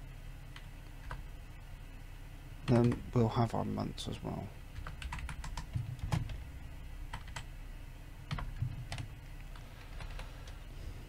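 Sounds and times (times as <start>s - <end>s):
low steady hum: 0.0s - 11.0s
computer keyboard clicks: 4.8s - 6.4s, 7.1s - 7.5s, 8.3s - 10.6s.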